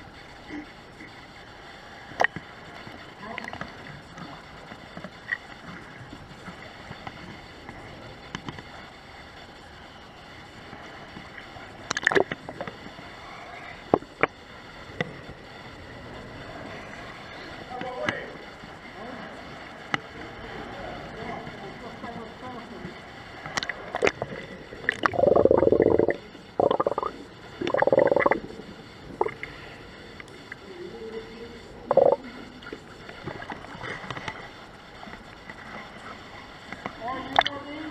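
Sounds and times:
underwater regulator bubbles: 0:11.8 - 0:12.8, 0:23.5 - 0:29.6, 0:31.8 - 0:34.5.

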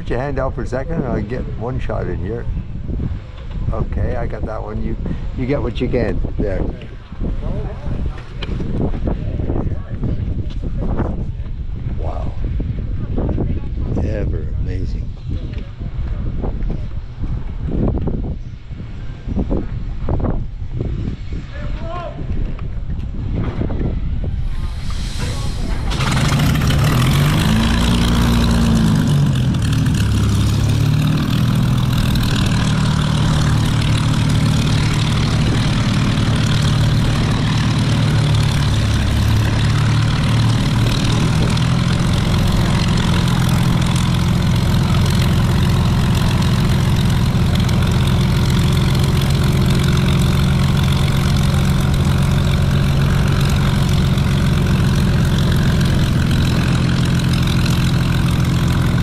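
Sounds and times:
large engine idling: 0:23.9 - 0:59.0.

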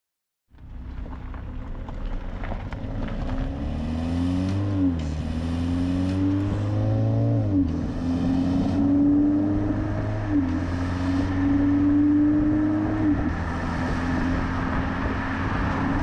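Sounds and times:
car engine accelerating: 0:00.6 - 0:16.0.

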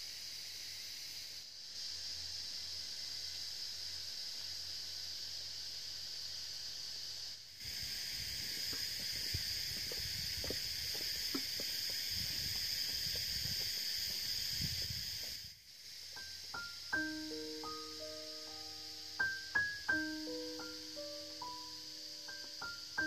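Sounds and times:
forest insects droning: 0:00.0 - 0:23.0
footsteps: 0:08.3 - 0:15.4.

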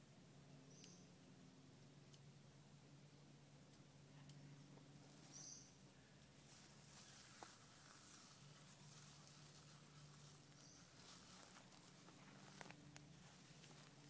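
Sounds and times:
high bird chirps: 0:00.7 - 0:01.1, 0:05.2 - 0:05.8, 0:10.5 - 0:11.0
small fire crackling: 0:06.2 - 0:14.0.

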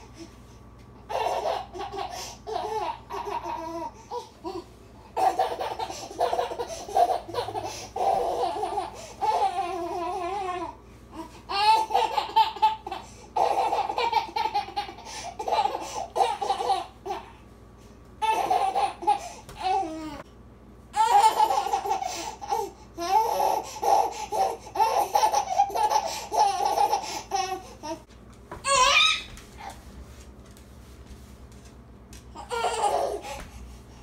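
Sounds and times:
baby laughing: 0:01.1 - 0:04.6, 0:05.2 - 0:10.7, 0:11.5 - 0:17.3, 0:18.2 - 0:20.2, 0:21.0 - 0:29.7, 0:32.4 - 0:33.4.

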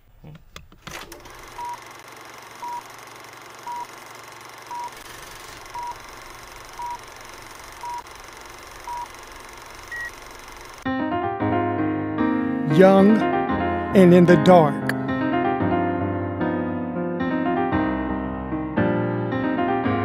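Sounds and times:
higher-pitched beep: 0:09.9 - 0:10.1
short countdown beeps: 0:09.9 - 0:10.1.

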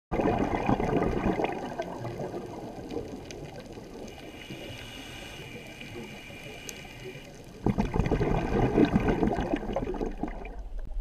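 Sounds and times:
underwater bubbling: 0:00.1 - 0:11.0
faint clicks: 0:02.4 - 0:07.6.

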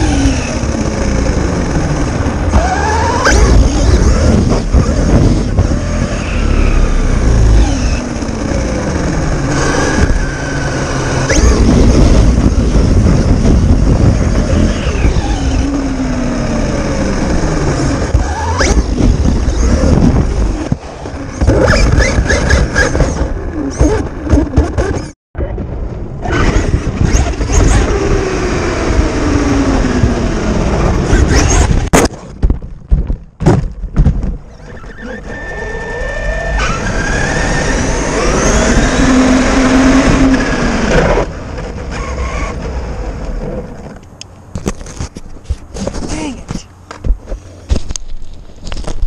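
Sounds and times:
electric motor and gear whine: 0:00.0 - 0:25.2, 0:26.2 - 0:31.9, 0:34.3 - 0:44.8
wind rush on microphone: 0:00.0 - 0:46.2
tyres on dirt: 0:00.0 - 0:49.0
sharp knocks from landings: 0:31.0 - 0:34.5.

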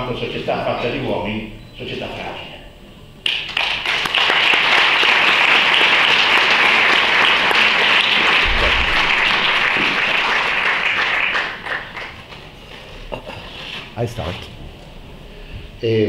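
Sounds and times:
audience applauding: 0:03.2 - 0:12.6.

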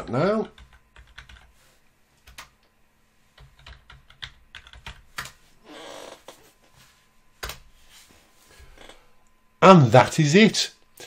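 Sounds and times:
keyboard typing: 0:00.4 - 0:01.5, 0:02.2 - 0:02.5, 0:03.4 - 0:05.4, 0:07.4 - 0:07.6.

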